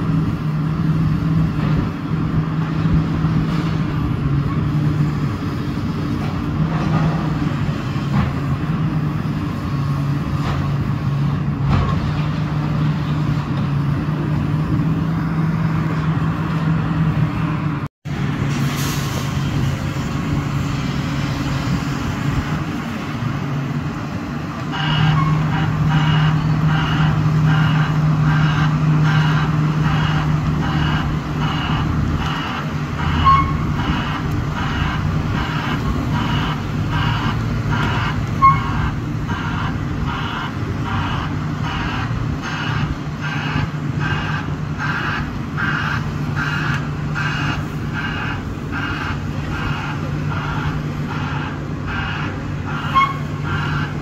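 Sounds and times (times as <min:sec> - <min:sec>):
excavator diesel engine running: 0:00.0 - 0:54.0
reversing alarm beeping: 0:24.7 - 0:54.0.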